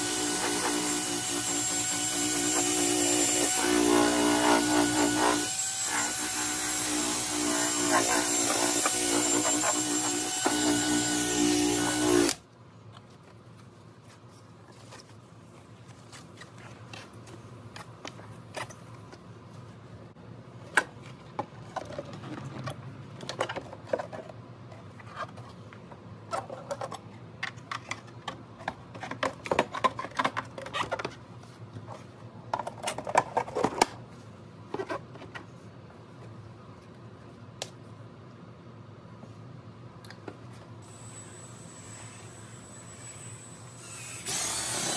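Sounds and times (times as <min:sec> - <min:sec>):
cordless drill spinning: 0:00.0 - 0:12.4, 0:41.6 - 0:44.9
plastic parts and tools rattling: 0:21.1 - 0:25.6, 0:26.3 - 0:31.2, 0:32.5 - 0:34.0.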